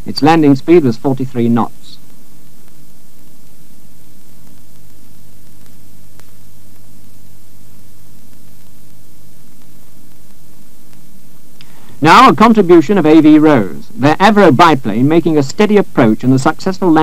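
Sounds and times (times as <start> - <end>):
low electrical hum: 0.0 - 17.0
steady hiss: 0.0 - 17.0
faint clicks: 4.3 - 6.9, 7.7 - 11.8.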